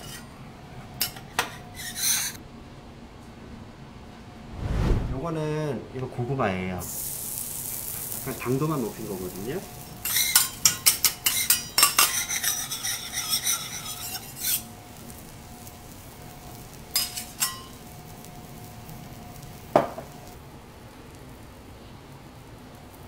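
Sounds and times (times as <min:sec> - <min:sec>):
metal spatulas scraping on griddle: 0:01.0 - 0:02.4, 0:10.0 - 0:14.8, 0:16.9 - 0:17.9
butter sizzling: 0:06.8 - 0:23.0.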